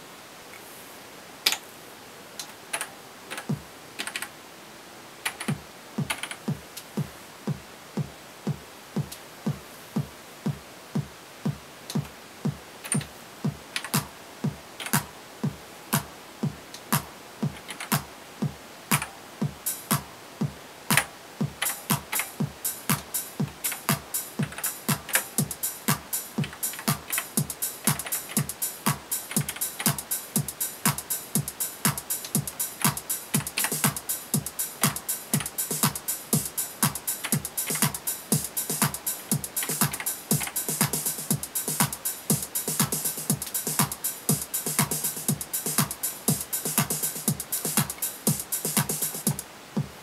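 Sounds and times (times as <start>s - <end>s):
drum machine bass drum beat: 3.4s - 3.7s, 5.4s - 50.0s
higher drum machine hits: 5.5s - 50.0s.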